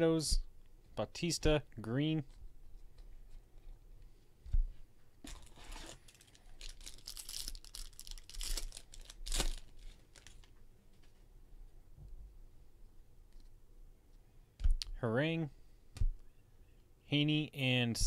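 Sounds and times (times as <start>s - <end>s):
foil wrapper tearing and crinkling: 5.4s - 10.5s.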